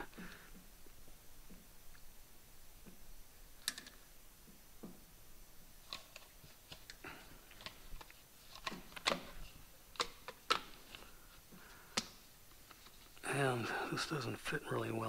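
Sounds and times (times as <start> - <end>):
rubber and plastic parts clicking: 5.8 - 13.2.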